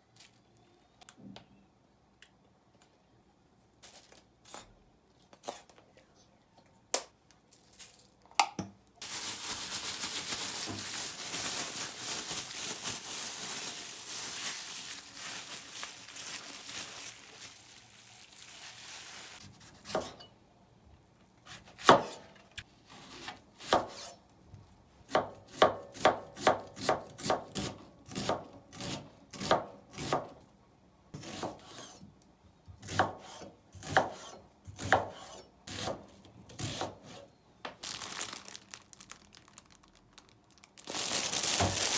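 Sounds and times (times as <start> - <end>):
knife chopping on cutting board: 19.8 - 20.2, 21.6 - 22.2, 23.6 - 24.1, 25.1 - 30.3, 31.2 - 32.0, 32.8 - 36.0.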